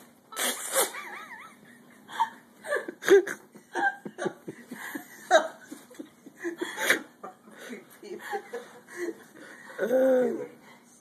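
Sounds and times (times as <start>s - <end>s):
people laughing: 1.0s - 9.6s.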